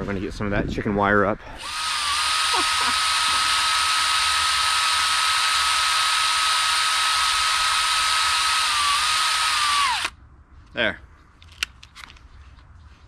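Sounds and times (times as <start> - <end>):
cordless drill whining: 1.6 - 10.1.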